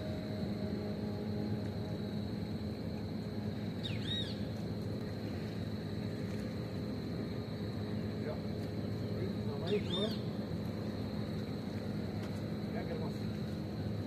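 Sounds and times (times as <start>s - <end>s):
whistled bird call: 3.8s - 4.4s, 9.6s - 10.2s.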